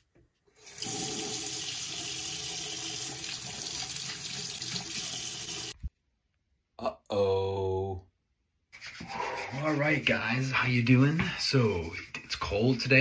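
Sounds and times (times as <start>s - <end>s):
water running into sink: 0.6s - 5.8s.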